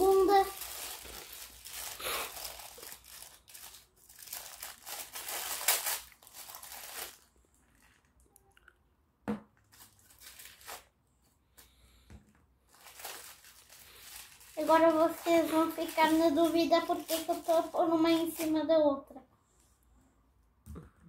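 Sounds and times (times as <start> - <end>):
plastic wrap crinkling and tearing: 0.0 - 8.3, 9.7 - 11.0, 12.7 - 18.7.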